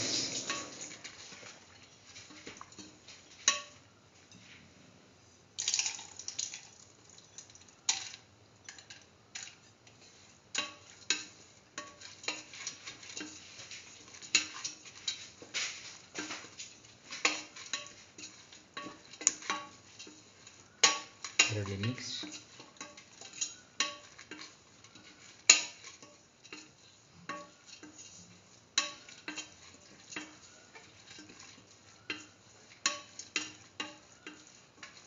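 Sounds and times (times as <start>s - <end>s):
pot ringing: 0.0s - 1.1s, 20.6s - 24.5s, 28.8s - 35.0s
metal spatula scraping pot: 0.0s - 3.8s, 7.9s - 35.0s.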